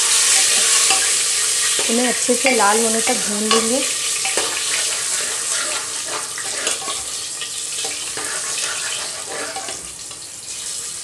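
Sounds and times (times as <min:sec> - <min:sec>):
garlic sizzling in oil: 0:00.0 - 0:11.0
ladle scraping pot: 0:03.5 - 0:07.2, 0:07.8 - 0:09.9.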